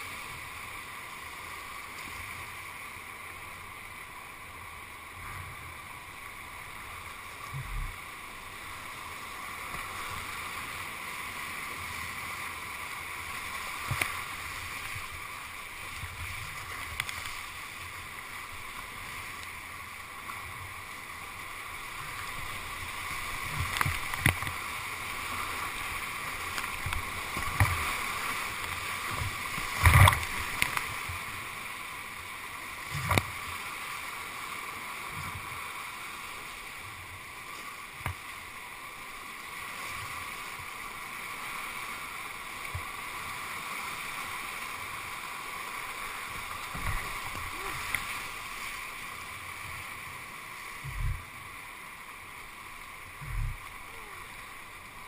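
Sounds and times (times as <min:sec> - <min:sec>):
whitewater rapids rushing: 0:00.0 - 0:55.0
splashes and knocks on boat: 0:29.1 - 0:31.1.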